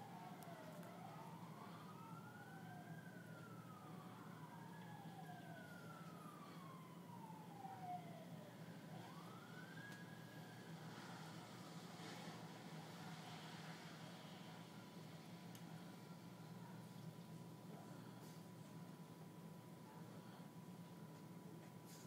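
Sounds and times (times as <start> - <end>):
faint emergency siren wailing: 0.0 - 22.0
steady low hum: 0.0 - 22.0.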